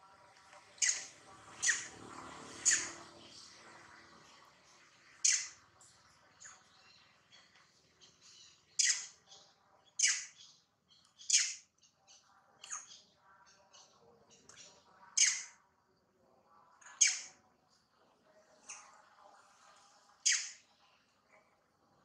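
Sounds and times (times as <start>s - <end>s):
faint chirps: 0.0s - 22.0s
high-pitched squawking calls: 0.8s - 2.0s, 2.6s - 3.1s, 5.2s - 5.6s, 8.8s - 9.2s, 15.2s - 15.5s, 17.0s - 17.4s, 20.2s - 20.6s.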